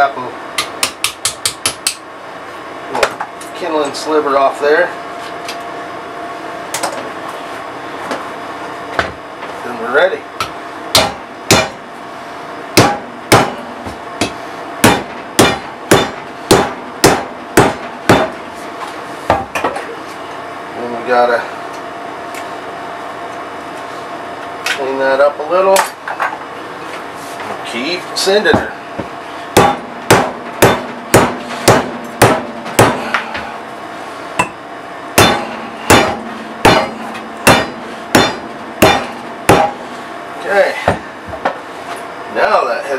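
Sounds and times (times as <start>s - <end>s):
faint steady hum: 0.0s - 42.9s
hammer striking wooden wedge: 10.4s - 11.8s, 12.8s - 18.4s, 29.6s - 33.2s, 35.2s - 39.8s.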